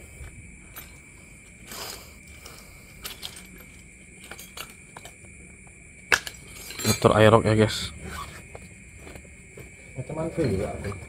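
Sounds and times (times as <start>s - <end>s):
night insects droning: 0.0s - 11.0s
tools clicking and rustling: 1.6s - 5.3s.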